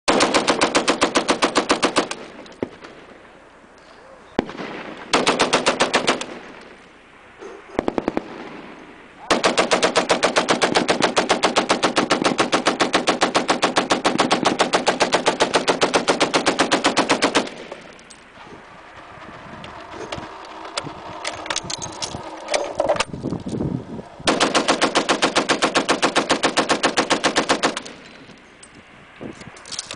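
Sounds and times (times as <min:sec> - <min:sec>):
machine gun firing bursts: 0:00.1 - 0:03.0, 0:04.4 - 0:06.6, 0:07.8 - 0:08.5, 0:09.3 - 0:17.9, 0:24.3 - 0:28.0.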